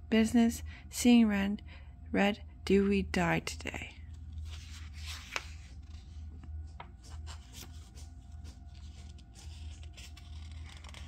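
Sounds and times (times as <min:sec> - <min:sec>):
steady low hum: 0:00.0 - 0:11.0
paper pages rustling: 0:04.1 - 0:11.0.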